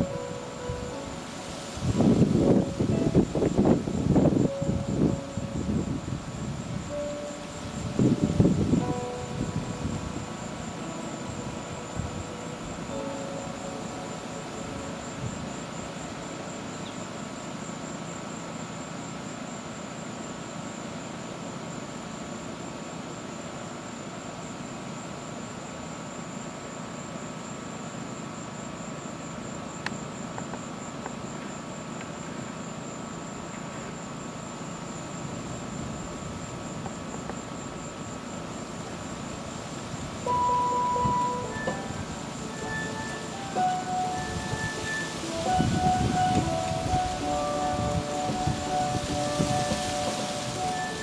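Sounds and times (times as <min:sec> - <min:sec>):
pulsing insect trill: 0:00.0 - 0:51.0
distant traffic hum: 0:29.8 - 0:51.0.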